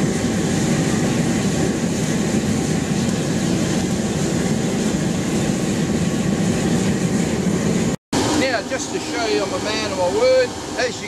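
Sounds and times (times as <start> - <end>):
blower fan and flames roaring: 0.0 - 11.0.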